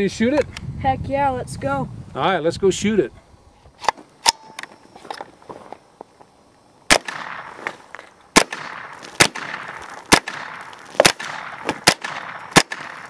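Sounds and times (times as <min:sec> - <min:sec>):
rifle shots with echo: 0:06.9 - 0:07.6, 0:08.4 - 0:13.0.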